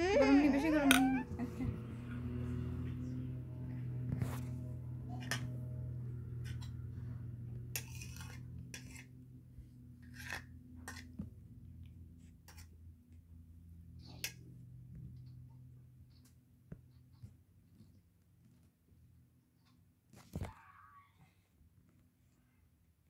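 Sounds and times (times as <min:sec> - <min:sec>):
low steady hum: 0:00.0 - 0:16.8.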